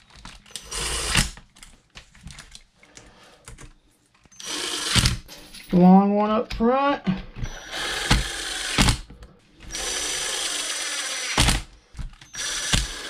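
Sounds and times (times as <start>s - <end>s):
cordless drill whirring: 0.5s - 1.4s, 4.3s - 5.2s, 7.4s - 9.0s, 9.6s - 13.0s.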